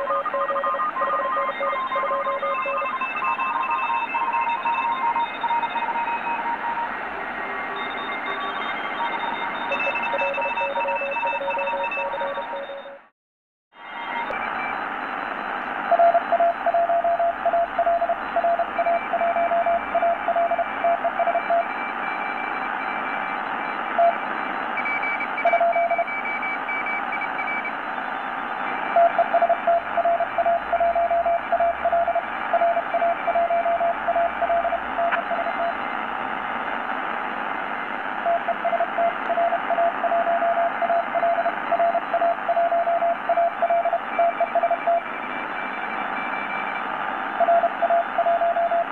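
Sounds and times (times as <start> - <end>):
faint higher morse signal: 0.0 - 13.0, 13.9 - 36.2, 37.8 - 48.9
morse code tone: 0.0 - 13.1, 14.0 - 36.0, 38.2 - 48.9
shortwave radio hiss: 35.2 - 38.9.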